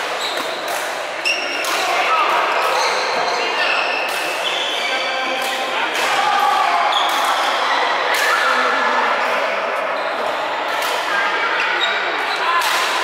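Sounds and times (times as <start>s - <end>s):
racket smacking shuttlecock: 0.0s - 2.0s.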